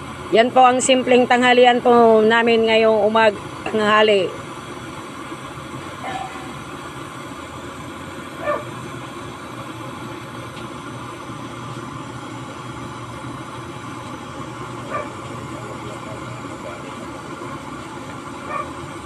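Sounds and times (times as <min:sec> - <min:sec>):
burner rumbling hiss: 0:00.0 - 0:19.0.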